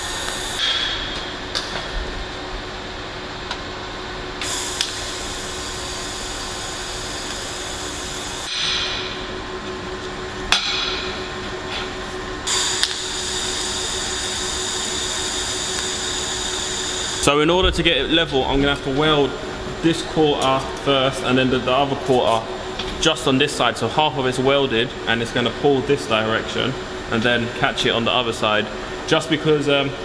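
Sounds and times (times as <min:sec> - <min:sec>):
welding arc hissing: 0:00.0 - 0:00.9, 0:04.4 - 0:08.5, 0:12.5 - 0:17.2
steady low hum: 0:00.0 - 0:30.0
welder click: 0:04.4 - 0:05.1, 0:12.5 - 0:14.5, 0:15.5 - 0:16.2.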